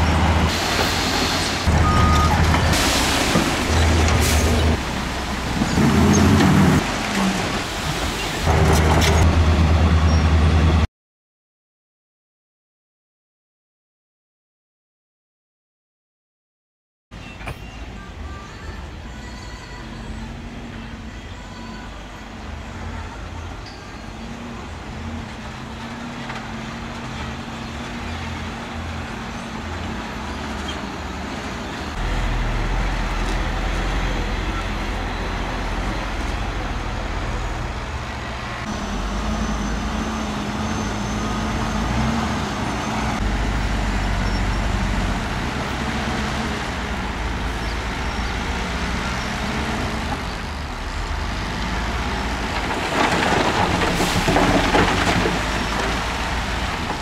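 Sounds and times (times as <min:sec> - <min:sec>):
dump truck engine drone: 0:00.0 - 0:10.9, 0:17.2 - 0:57.0
dirt and rock pouring out: 0:52.0 - 0:57.0.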